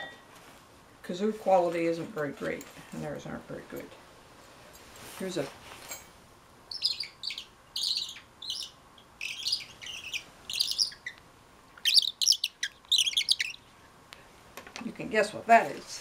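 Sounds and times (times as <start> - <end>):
squeaky bird call chirps: 6.7 - 11.2, 11.8 - 13.6.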